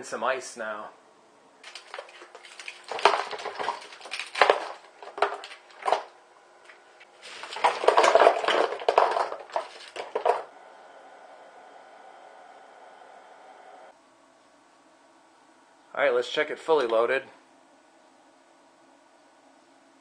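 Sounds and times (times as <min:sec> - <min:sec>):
ice cubes clattering into plastic chest: 0:01.7 - 0:06.1, 0:07.2 - 0:10.5.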